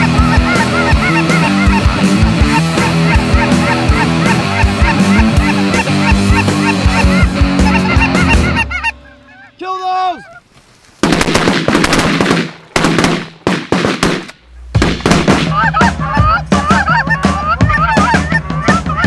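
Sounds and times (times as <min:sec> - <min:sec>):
background music with bass: 0:00.0 - 0:09.4, 0:14.4 - 0:19.0
geese honking: 0:00.0 - 0:10.9, 0:14.1 - 0:19.0
sharp hits: 0:11.0 - 0:15.9.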